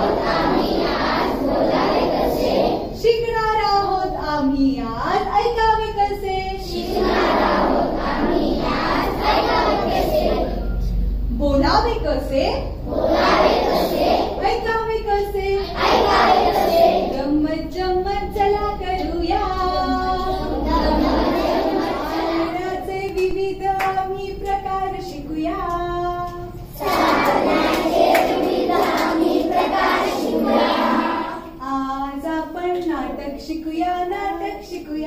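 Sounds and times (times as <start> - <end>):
children singing in unison: 0.0 - 3.0, 6.7 - 10.8, 12.8 - 14.4, 15.6 - 17.3, 19.8 - 22.9, 26.7 - 31.6.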